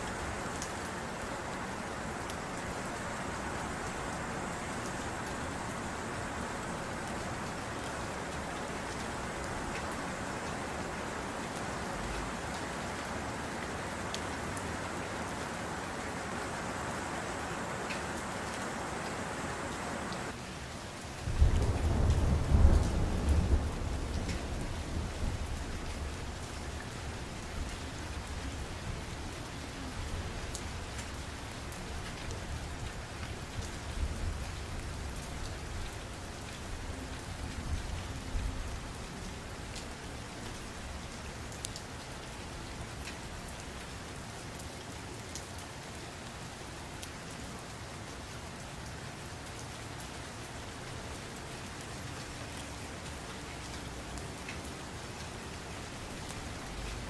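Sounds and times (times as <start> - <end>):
rain-like hiss: 0.0 - 57.0.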